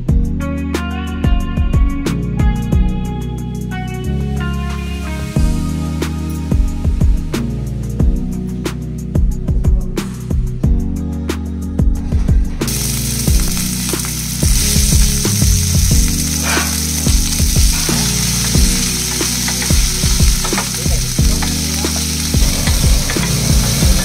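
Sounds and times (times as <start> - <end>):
vegetables sizzling in hot oil: 12.7 - 24.0.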